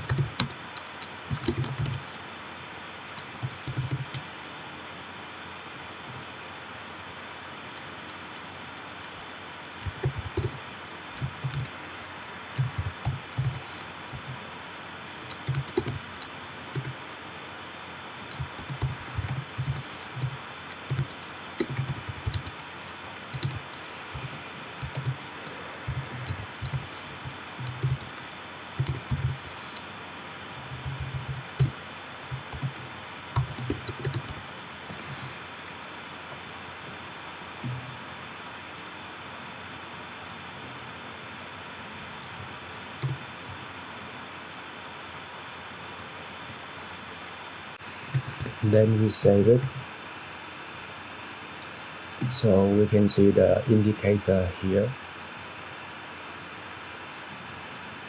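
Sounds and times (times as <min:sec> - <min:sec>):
typing on computer keyboard: 0:00.0 - 0:02.2, 0:03.1 - 0:04.2, 0:07.8 - 0:10.6, 0:11.2 - 0:11.7, 0:12.6 - 0:14.2, 0:15.1 - 0:17.0, 0:18.2 - 0:23.8, 0:24.8 - 0:25.2, 0:25.9 - 0:29.8, 0:32.4 - 0:32.8, 0:33.4 - 0:34.4
steady background hiss: 0:00.0 - 0:58.0.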